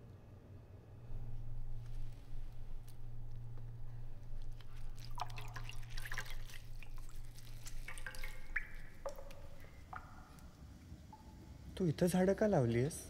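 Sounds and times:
water dripping into a basin: 2.8 - 11.9.

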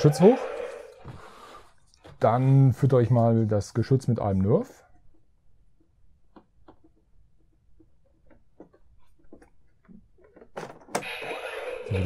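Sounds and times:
faint plastic clicks and taps: 5.0 - 10.5.

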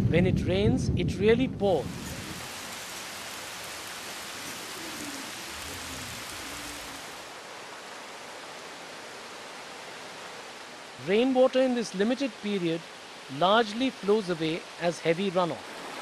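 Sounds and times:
heavy rain pouring: 1.7 - 11.0.

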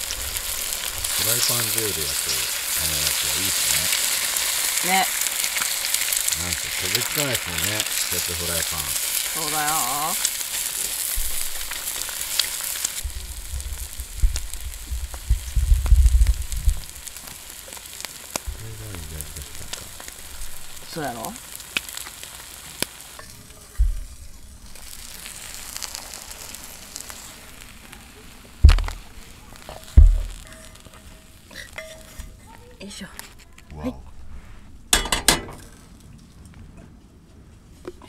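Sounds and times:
eggs sizzling in pan: 0.0 - 36.0
low knocks: 23.8 - 24.2, 28.6 - 29.1, 29.9 - 30.4
sharp loud thump: 23.8 - 24.2, 28.6 - 29.0, 29.9 - 30.5
chopsticks stirring: 29.7 - 32.4.

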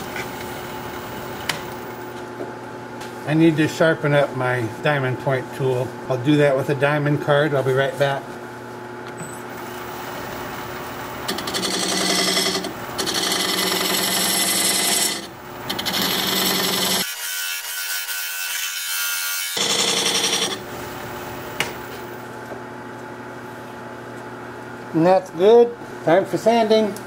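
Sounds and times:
wood lathe humming: 9.6 - 20.7
tool scraping spinning wood: 11.2 - 17.2, 19.5 - 20.7.

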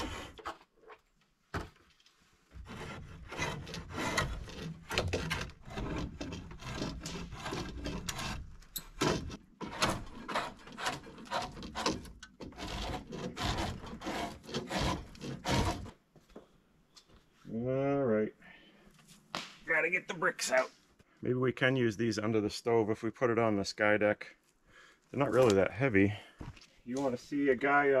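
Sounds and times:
knife scraping wood: 2.5 - 15.9.

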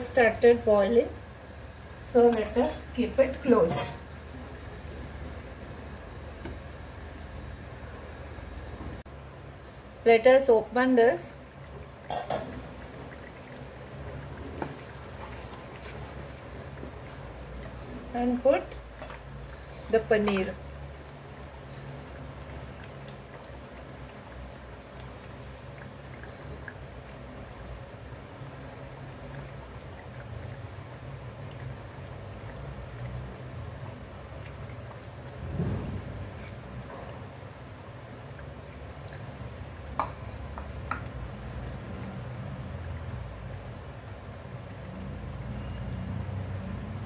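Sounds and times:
curry bubbling in a pan: 11.0 - 47.0.

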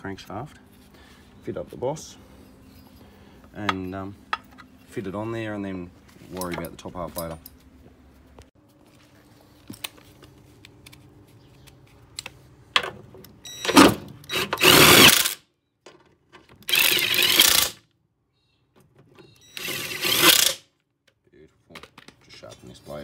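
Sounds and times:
cordless power driver spinning: 14.2 - 15.4, 16.6 - 17.8, 19.6 - 20.6.

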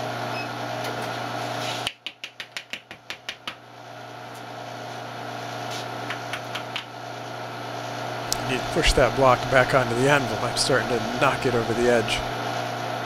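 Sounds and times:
low steady hum: 6.1 - 13.0.

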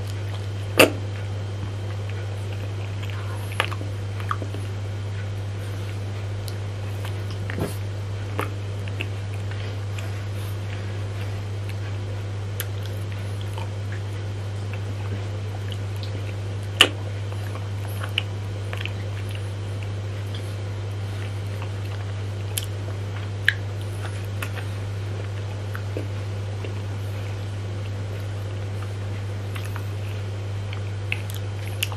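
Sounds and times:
biting and mouth clicks: 0.0 - 5.3, 5.9 - 11.9, 12.6 - 20.5, 21.2 - 30.1, 30.7 - 31.9
steady low hum: 0.0 - 31.9.

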